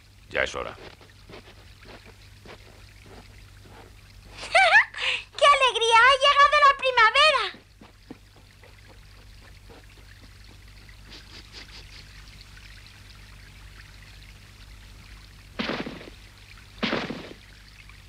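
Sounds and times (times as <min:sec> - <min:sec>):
cartoon water trickling: 0:00.0 - 0:18.0
rushes of water: 0:07.6 - 0:18.0.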